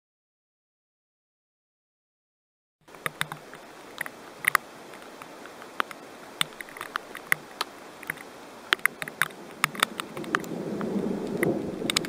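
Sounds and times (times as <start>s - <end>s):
soft hiss of rain: 2.8s - 12.0s
raindrops tapping close: 2.9s - 12.0s.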